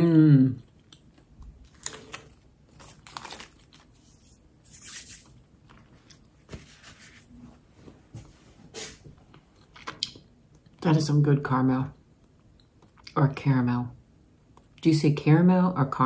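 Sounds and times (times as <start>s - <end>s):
person chewing sticky candy: 0.6s - 2.6s, 9.3s - 10.8s.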